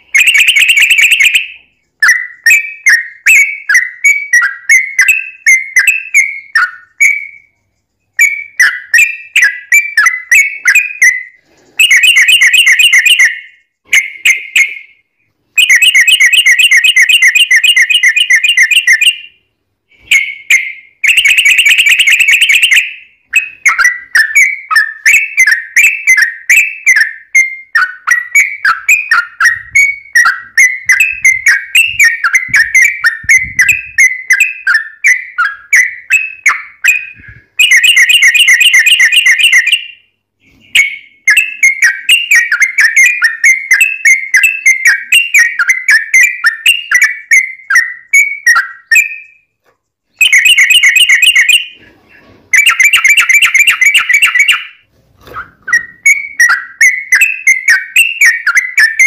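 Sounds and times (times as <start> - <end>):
bird chattering song: 0.0 - 15.0, 15.6 - 49.5, 50.1 - 59.0
bird fast trilling: 20.0 - 49.4.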